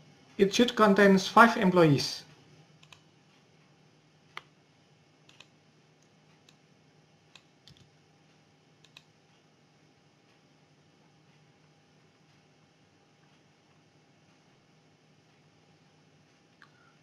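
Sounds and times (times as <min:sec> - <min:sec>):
faint low hum: 0:00.0 - 0:17.0
computer mouse clicks: 0:02.8 - 0:03.1, 0:05.3 - 0:06.6, 0:07.3 - 0:07.9, 0:08.8 - 0:09.1.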